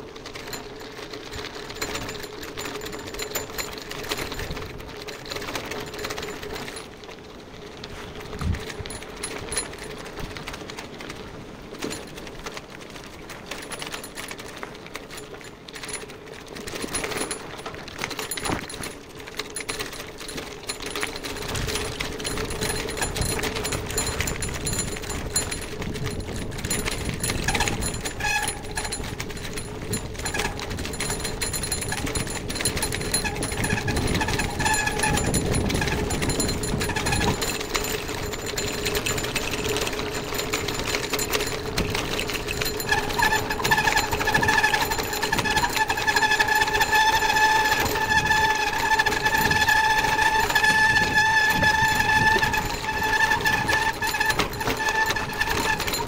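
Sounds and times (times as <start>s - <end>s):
bicycle rattling over cobblestones: 0.0s - 56.0s
steady high squeal: 26.8s - 37.9s, 42.6s - 56.0s.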